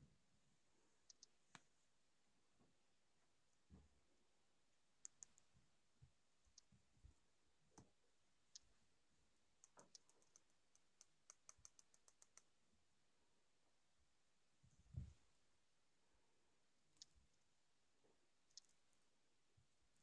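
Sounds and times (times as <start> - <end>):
kittens' claws clicking: 9.6 - 12.5.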